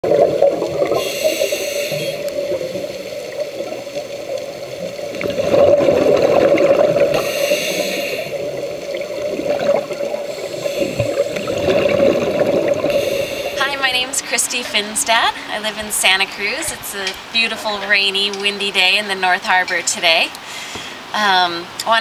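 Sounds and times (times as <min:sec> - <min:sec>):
muffled underwater rush: 0:00.0 - 0:18.1
diver regulator breathing: 0:00.8 - 0:03.2, 0:07.0 - 0:08.8, 0:10.1 - 0:14.1, 0:20.4 - 0:21.1.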